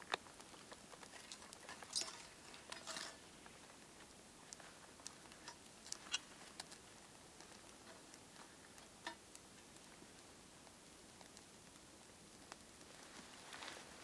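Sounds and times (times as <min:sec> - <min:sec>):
fire pops and clicks: 0:00.0 - 0:14.0
low hiss: 0:00.0 - 0:14.0
wood fire crackling: 0:00.0 - 0:14.0.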